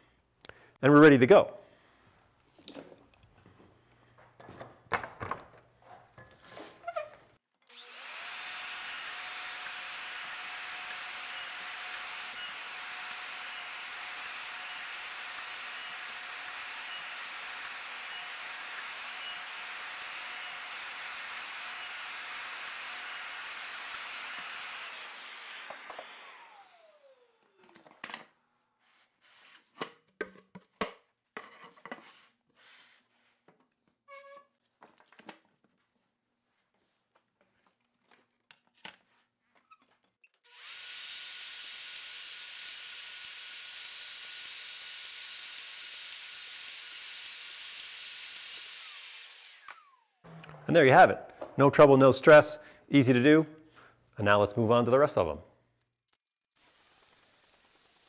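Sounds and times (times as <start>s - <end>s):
router running with whine: 7.7s - 27.8s, 40.5s - 50.6s.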